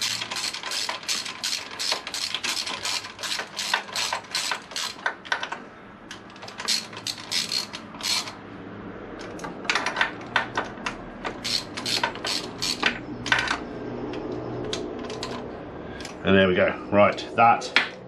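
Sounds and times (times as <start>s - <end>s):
hand ratchet clicking: 0.0s - 8.4s, 10.9s - 13.6s.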